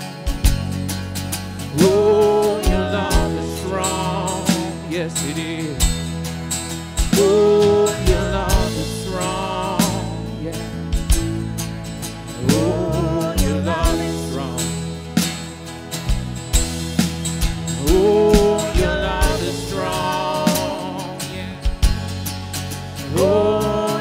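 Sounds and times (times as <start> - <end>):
band with drums: 0.2 - 22.8
person singing: 1.7 - 6.2, 7.1 - 11.0, 12.4 - 15.1, 17.8 - 21.8, 23.0 - 24.0.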